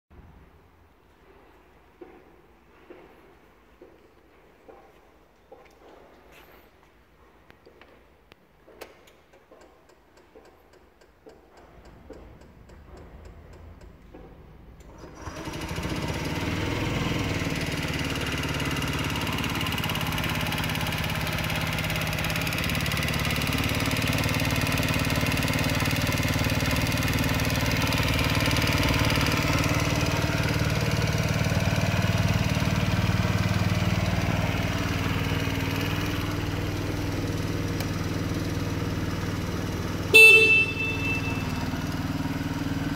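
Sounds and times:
scooter engine starting and idling: 8.7s - 42.9s.

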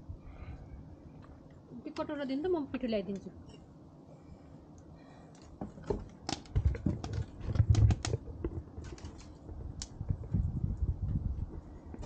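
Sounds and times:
firewood clicking and knocking: 5.3s - 12.0s.

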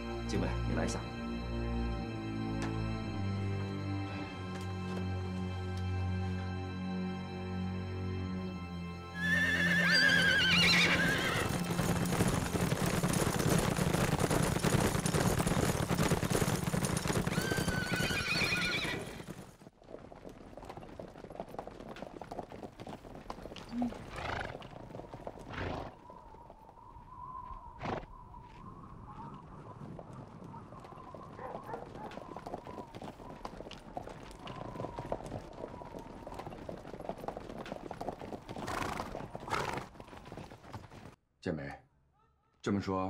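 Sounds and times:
horse whinnying: 9.2s - 11.6s, 17.2s - 19.4s, 23.6s - 24.7s, 25.4s - 26.0s, 27.8s - 28.1s, 38.5s - 39.9s
horses galloping hoofbeats: 9.2s - 41.2s.

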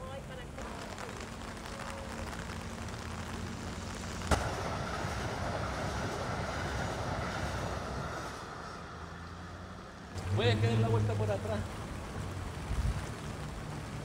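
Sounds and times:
rainy street ambience with low hum: 0.0s - 14.0s
train running over steel bridge: 4.3s - 10.1s.

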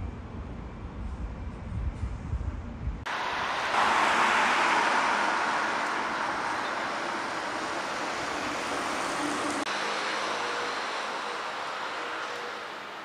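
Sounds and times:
road traffic passing: 3.0s - 13.0s.

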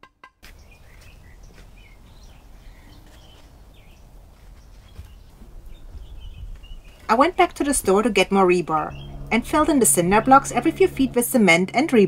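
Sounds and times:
birds chirping: 0.4s - 11.6s
low outdoor rumble: 5.3s - 12.0s.

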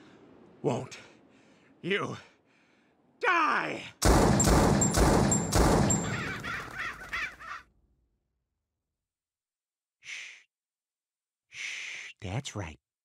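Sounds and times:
pistol shot: 4.0s - 6.4s.

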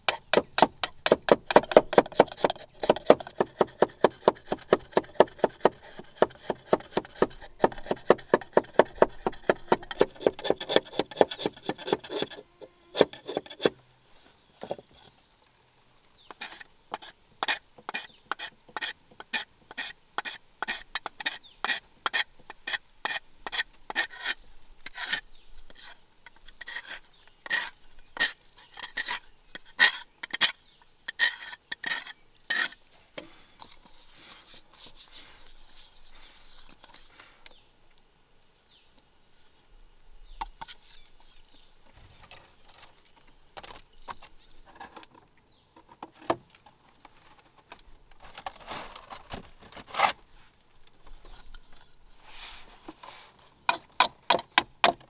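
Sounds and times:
knife scraping bamboo bowl: 0.1s - 13.8s, 16.3s - 32.8s, 33.6s - 37.1s.

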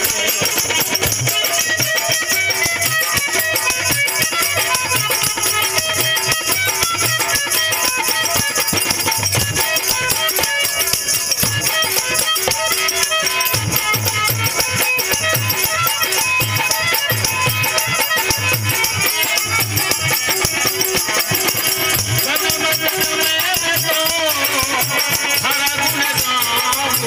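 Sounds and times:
dholak drum rhythm: 0.0s - 27.0s
harmonium melody: 0.0s - 27.0s
rattling percussion: 0.0s - 27.0s.

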